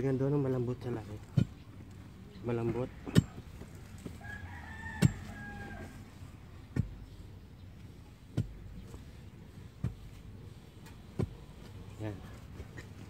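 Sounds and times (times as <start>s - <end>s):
digging bar thudding into soil: 2.6s - 4.2s, 4.9s - 5.4s, 8.3s - 9.0s, 9.8s - 11.7s
rooster crowing: 4.2s - 6.1s.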